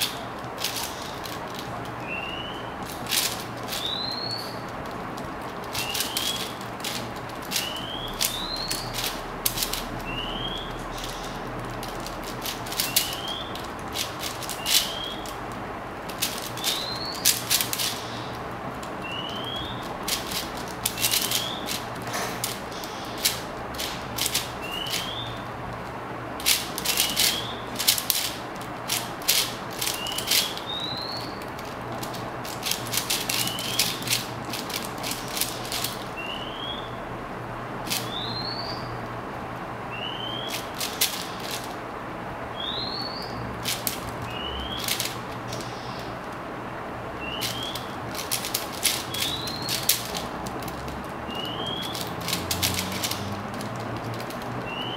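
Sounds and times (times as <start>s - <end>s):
plastic puzzle cube clicking: 0.0s - 2.0s, 2.8s - 10.2s, 10.9s - 25.2s, 25.8s - 36.2s, 37.9s - 38.2s, 40.4s - 41.8s, 43.6s - 44.2s, 44.8s - 45.6s, 47.3s - 54.8s
bird chirping: 2.0s - 2.9s, 3.6s - 4.7s, 5.7s - 6.6s, 7.4s - 9.1s, 9.9s - 11.4s, 12.6s - 13.7s, 14.3s - 15.3s, 16.6s - 18.4s, 19.0s - 19.9s, 20.8s - 25.5s, 26.8s - 28.3s, 29.8s - 32.1s, 32.8s - 37.1s, 38.0s - 39.0s, 39.9s - 41.5s, 42.5s - 43.5s, 44.2s - 46.1s, 47.2s - 48.0s, 49.0s - 50.1s, 51.3s - 52.1s, 54.6s - 54.9s.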